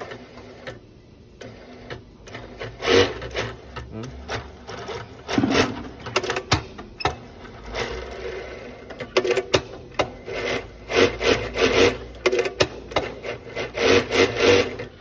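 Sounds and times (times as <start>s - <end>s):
industrial sewing machine bursts: 4.4s - 6.5s, 7.6s - 15.0s.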